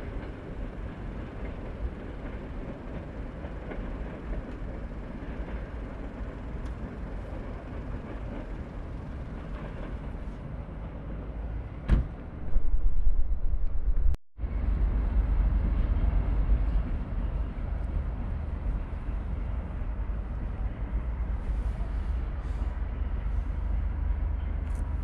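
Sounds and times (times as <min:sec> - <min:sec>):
distant train rumble: 0:00.0 - 0:25.0
sudden thump: 0:11.9 - 0:12.7.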